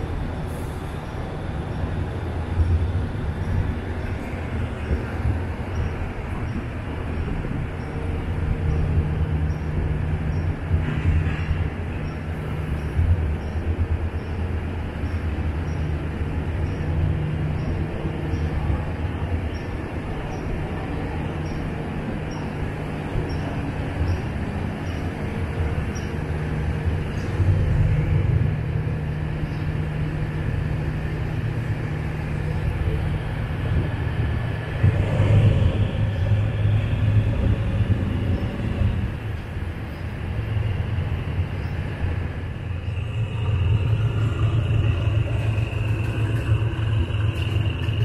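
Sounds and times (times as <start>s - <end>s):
diesel train engine rumbling: 0.0s - 48.0s.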